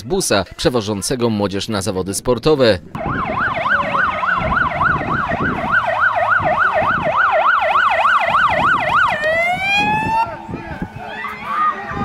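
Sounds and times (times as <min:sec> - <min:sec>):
fire engine siren yelping: 0:03.0 - 0:12.0.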